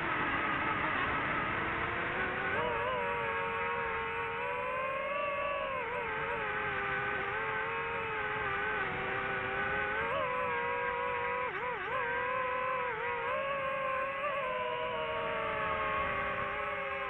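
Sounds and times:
drone propellers buzzing: 0:00.0 - 0:17.0.

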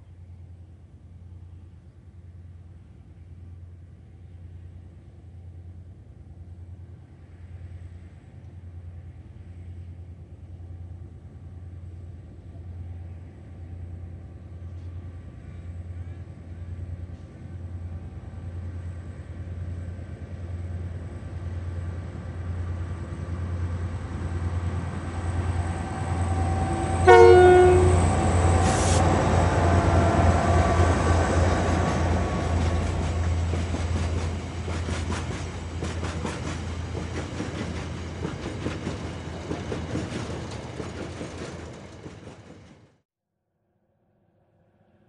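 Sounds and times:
diesel locomotive engines droning: 0:00.0 - 0:43.0
train horn blast: 0:25.6 - 0:31.1
train wheels clattering: 0:31.6 - 0:43.0.

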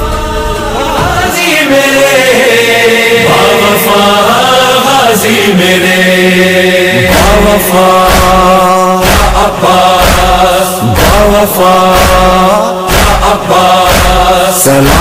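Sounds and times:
sharp percussion hits: 0:00.0 - 0:04.0, 0:07.0 - 0:15.0
chanted vocal with long notes: 0:00.0 - 0:15.0
steady drone: 0:00.0 - 0:15.0.

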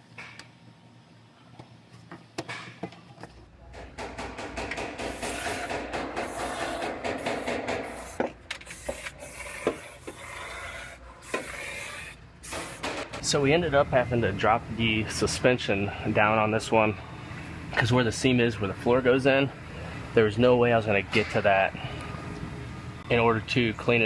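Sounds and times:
aerosol can spraying: 0:05.0 - 0:10.3.

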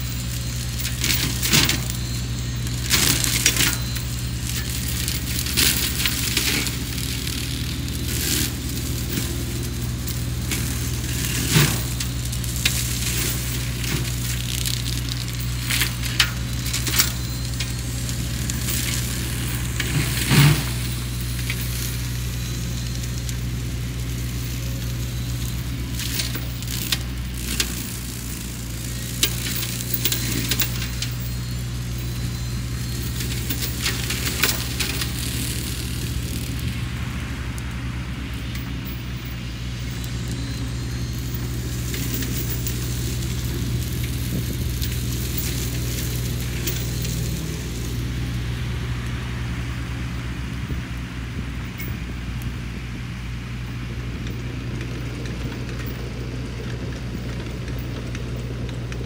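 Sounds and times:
diesel engine running: 0:00.0 - 0:59.0
flail mulcher cutting brush: 0:00.0 - 0:59.0
wood cracking and snapping: 0:00.1 - 0:36.8.

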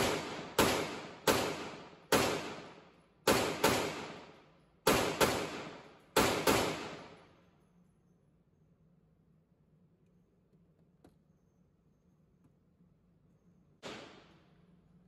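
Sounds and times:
pistol shots echoing indoors: 0:00.0 - 0:07.6, 0:13.8 - 0:14.7.

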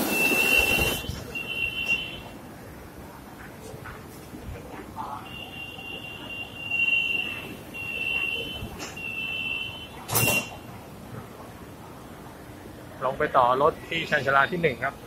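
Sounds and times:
door warning beeps: 0:00.0 - 0:02.3, 0:05.2 - 0:10.7
train doors shutting: 0:00.0 - 0:02.4, 0:07.5 - 0:10.8.

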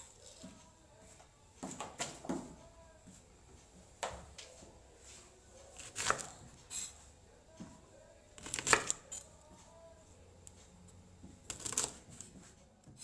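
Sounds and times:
knife chopping on wooden board: 0:05.8 - 0:06.4, 0:08.4 - 0:09.2, 0:11.5 - 0:12.2.

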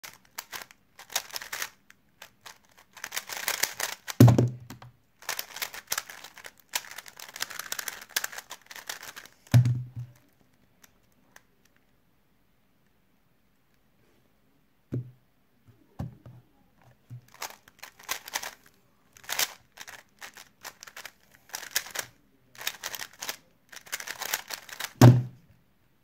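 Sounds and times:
puzzle cube plastic clicking: 0:00.0 - 0:11.8, 0:17.2 - 0:25.0
heavy thumps: 0:04.2 - 0:04.9, 0:09.5 - 0:10.2.

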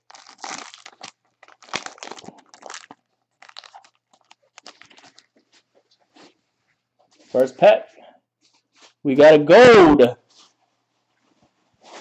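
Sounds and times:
wrapper tearing and crumpling: 0:00.0 - 0:05.4.

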